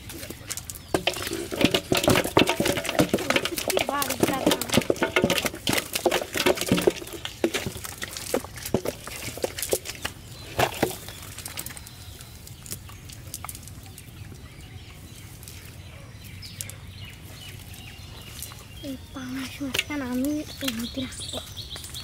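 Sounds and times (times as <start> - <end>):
fish flopping and slapping: 0.0 - 14.1.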